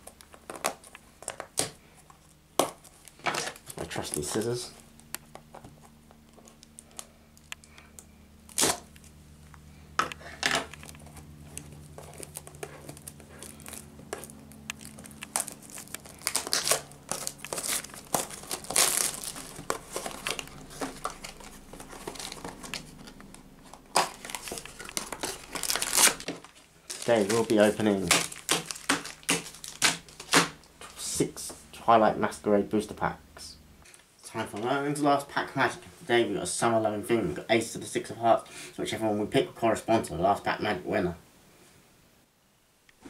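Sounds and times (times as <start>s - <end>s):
plastic wrap crinkling and tearing: 8.4s - 9.1s, 10.6s - 31.0s
scissors cutting plastic wrap: 8.5s - 9.1s, 10.6s - 31.0s.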